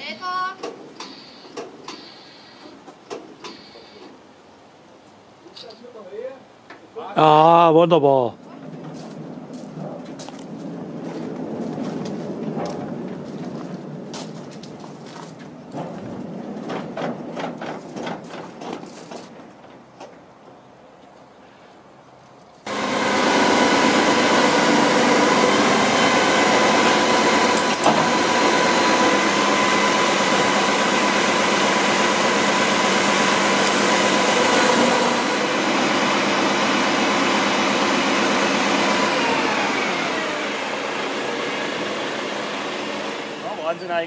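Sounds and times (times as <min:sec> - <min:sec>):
crane hydraulics whining: 0:01.0 - 0:02.8, 0:03.4 - 0:04.2, 0:22.7 - 0:43.8
truck engine running: 0:22.7 - 0:38.4.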